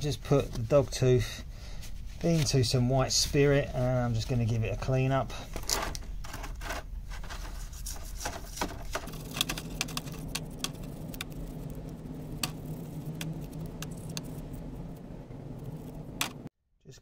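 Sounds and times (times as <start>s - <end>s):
steady low hum: 7.5s - 16.5s.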